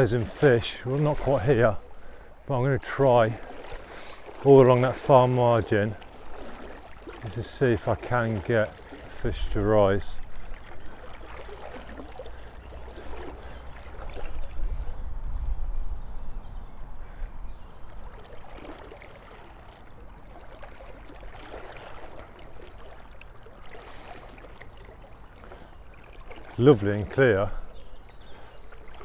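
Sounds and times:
river water flowing and lapping: 0:00.0 - 0:29.0.

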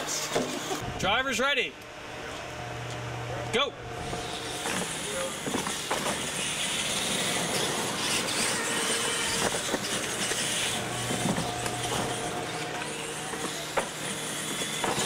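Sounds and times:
toy truck motors whirring: 0:04.0 - 0:15.0.

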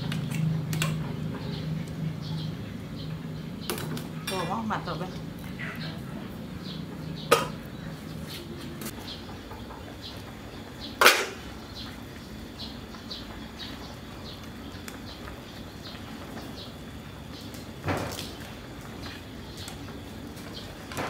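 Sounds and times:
metal cookware clanking: 0:03.7 - 0:04.8, 0:07.3 - 0:07.6.

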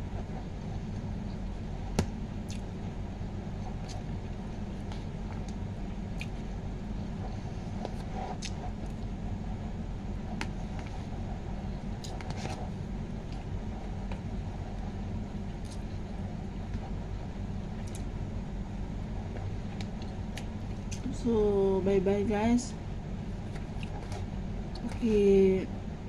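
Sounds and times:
low background hum: 0:00.0 - 0:26.0
person chewing noodles: 0:02.4 - 0:02.7.

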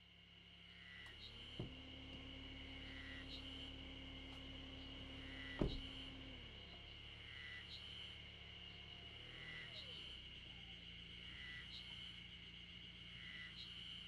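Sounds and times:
van door shutting: 0:01.5 - 0:02.3, 0:05.2 - 0:06.2.

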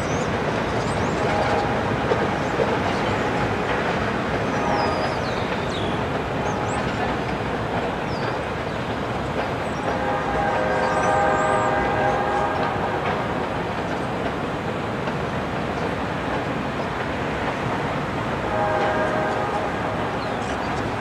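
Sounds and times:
freight train wheels clattering: 0:00.0 - 0:21.0
locomotive horn chord: 0:09.9 - 0:13.4, 0:18.4 - 0:20.4.

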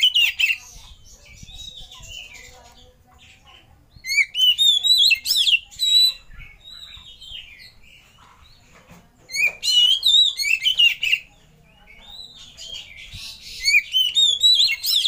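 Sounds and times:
bird singing whistled notes: 0:04.0 - 0:07.7, 0:09.3 - 0:11.3, 0:12.0 - 0:15.0.

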